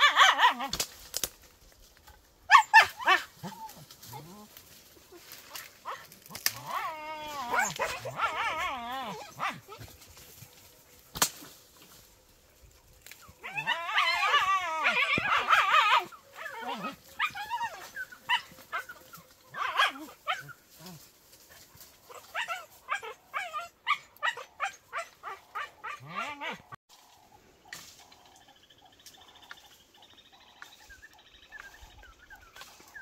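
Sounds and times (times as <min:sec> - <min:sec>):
dogs yelping and barking: 0:00.0 - 0:00.8, 0:02.4 - 0:10.5, 0:13.0 - 0:26.8
sharp crack: 0:11.1 - 0:11.6.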